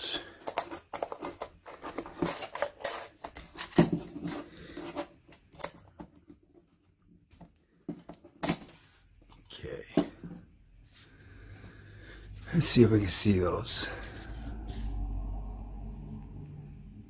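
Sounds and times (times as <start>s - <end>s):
metal clicks and scrapes: 0.2s - 6.1s.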